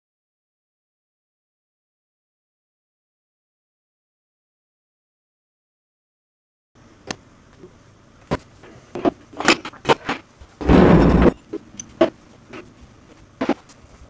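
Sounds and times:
noisy scrape: 0:10.6 - 0:12.7.

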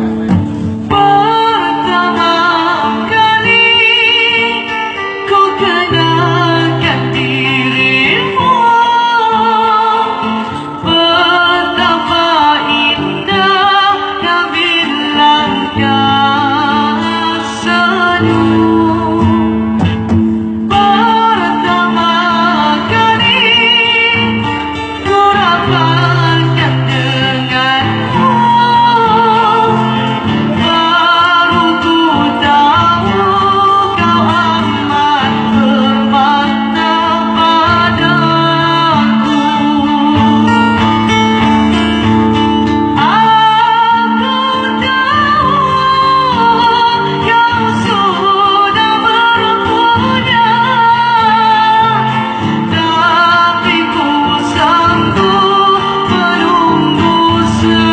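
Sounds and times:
strummed acoustic guitar: 0:00.0 - 0:57.9
woman singing with vibrato: 0:00.0 - 0:57.9.

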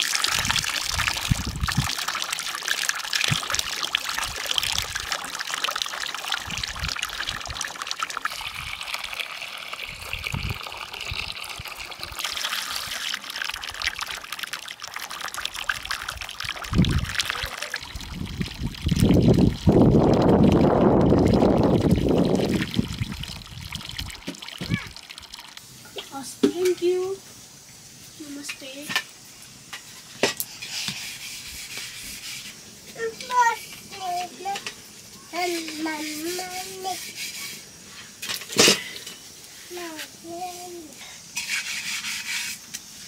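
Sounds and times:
water splashing into metal bowl: 0:00.0 - 0:27.0.

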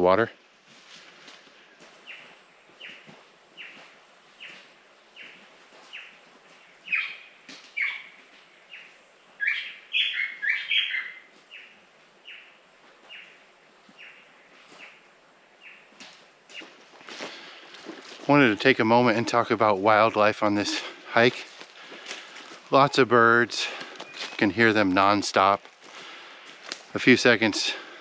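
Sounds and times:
bird chirps: 0:02.0 - 0:03.8, 0:06.8 - 0:13.4, 0:23.9 - 0:24.6.

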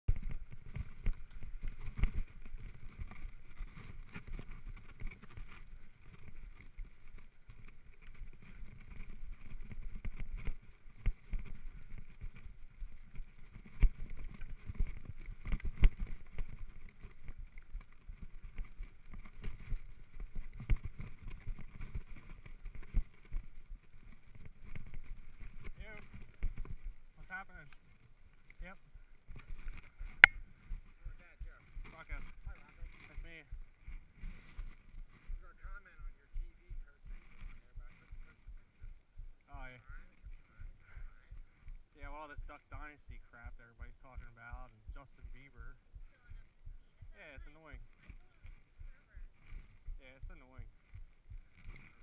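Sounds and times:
bike rattling: 0:00.1 - 0:38.0
bike tyres through dry leaves: 0:00.2 - 0:35.6, 0:47.8 - 0:52.0.

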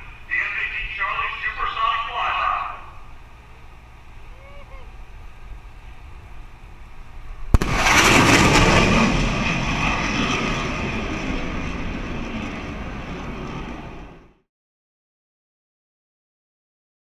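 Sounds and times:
jet roar: 0:00.0 - 0:14.4
sonic boom crack: 0:07.5 - 0:13.6.

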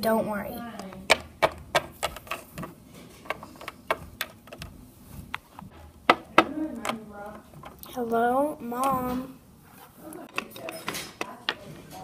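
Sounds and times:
plastic toy figures clicking on wood: 0:00.7 - 0:05.5, 0:06.1 - 0:08.0, 0:10.2 - 0:12.0
toy knocking on wooden panel: 0:01.1 - 0:02.7, 0:03.3 - 0:04.7, 0:06.0 - 0:07.0.

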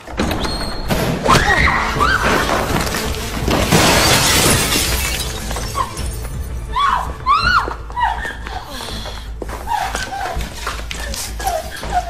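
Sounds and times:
film music: 0:00.0 - 0:12.0
window glass shattering: 0:02.2 - 0:06.3.

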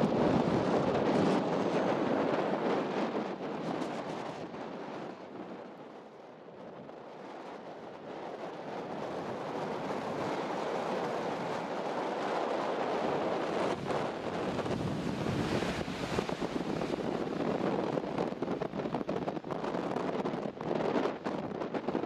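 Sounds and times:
wind on microphone: 0:00.0 - 0:22.0
surf washing onto beach: 0:08.9 - 0:22.0.

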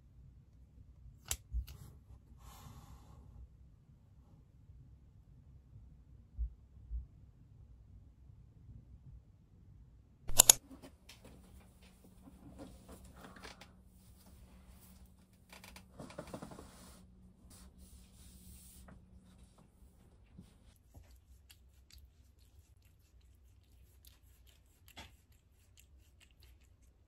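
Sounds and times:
faint low hum: 0:00.0 - 0:27.0
rustling and handling noises: 0:10.3 - 0:22.8.

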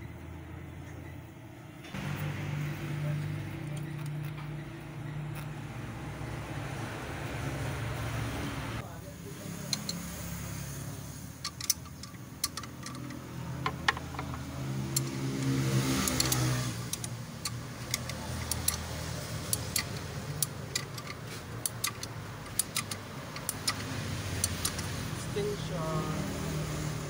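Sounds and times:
engine hum: 0:00.0 - 0:27.0
spanner metal clicks: 0:03.2 - 0:05.6, 0:09.7 - 0:10.0, 0:11.4 - 0:25.2.

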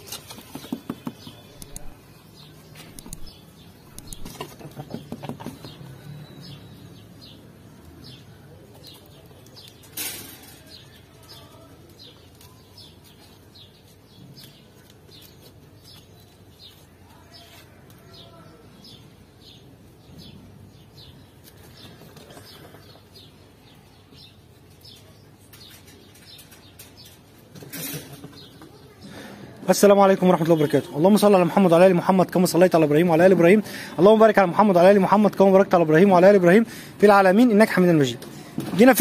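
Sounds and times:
goats knocking and rustling: 0:00.0 - 0:02.0, 0:02.7 - 0:06.0
small birds chirping: 0:00.0 - 0:39.0.

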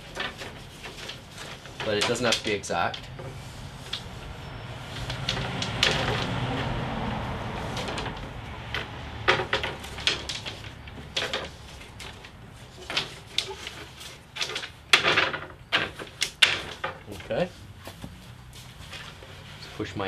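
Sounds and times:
wooden strips clacking: 0:00.0 - 0:18.2.

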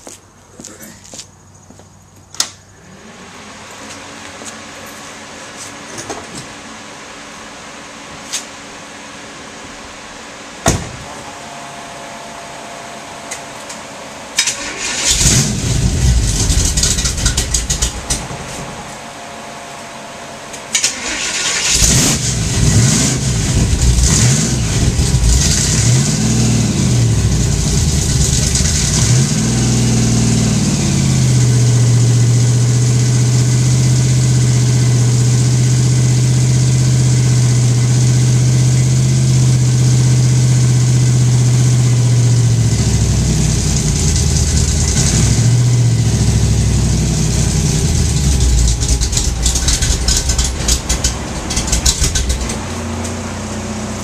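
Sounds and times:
car engine revving and idling: 0:08.8 - 0:54.0
engine starter cranking: 0:14.4 - 0:18.2, 0:20.7 - 0:22.3, 0:48.3 - 0:52.6.

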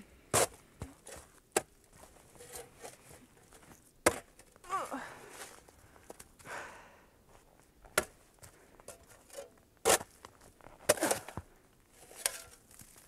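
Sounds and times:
spade chopping into snowy soil: 0:00.3 - 0:01.7, 0:04.0 - 0:04.3, 0:09.8 - 0:10.2, 0:10.8 - 0:11.4.

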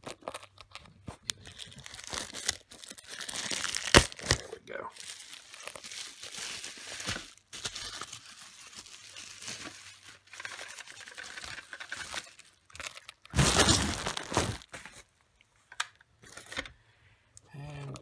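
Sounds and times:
bubble wrap crinkling: 0:00.0 - 0:15.2.

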